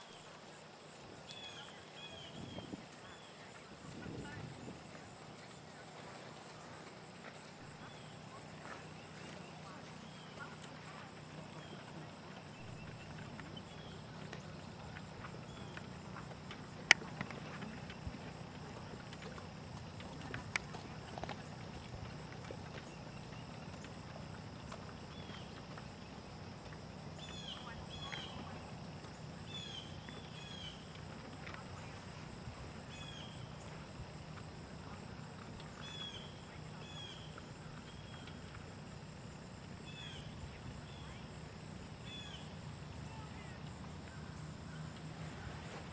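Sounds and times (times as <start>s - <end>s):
steady low hum: 0.0s - 45.9s
birds chirping: 7.8s - 31.4s.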